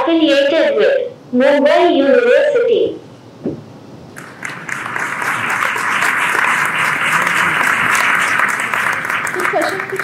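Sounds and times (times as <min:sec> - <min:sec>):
audience applauding: 0:04.2 - 0:10.0.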